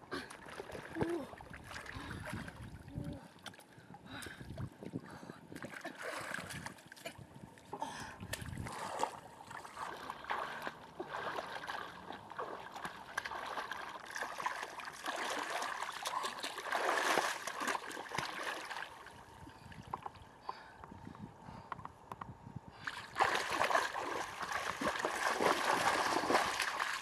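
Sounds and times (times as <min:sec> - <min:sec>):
muddy water splashing: 0:00.0 - 0:04.3, 0:05.5 - 0:07.2, 0:08.2 - 0:19.3, 0:22.8 - 0:27.0.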